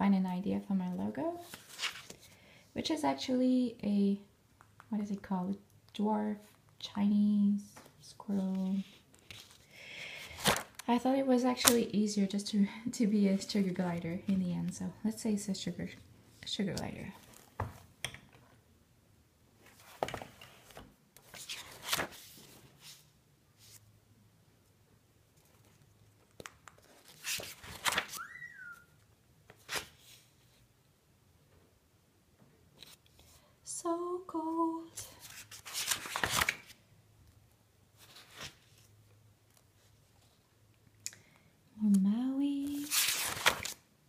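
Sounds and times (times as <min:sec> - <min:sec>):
paper page rustling: 0:01.4 - 0:02.4, 0:08.5 - 0:09.6, 0:19.7 - 0:23.8, 0:25.4 - 0:28.4, 0:35.2 - 0:36.8, 0:38.0 - 0:38.9, 0:42.6 - 0:43.8.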